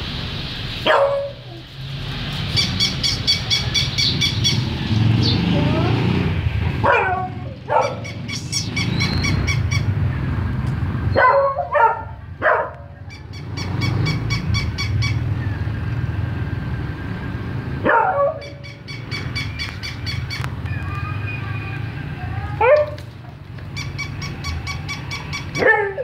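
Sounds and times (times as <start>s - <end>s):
dog barking: 0.8s - 1.6s, 6.8s - 8.4s, 11.1s - 13.0s, 17.8s - 18.7s, 22.6s - 23.0s, 25.5s - 26.0s.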